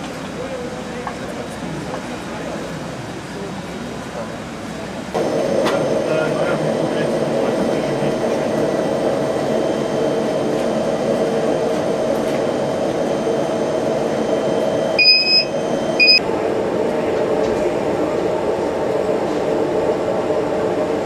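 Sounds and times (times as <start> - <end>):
gas fire roaring: 5.2 - 17.9
electronic beeps: 15.0 - 16.2.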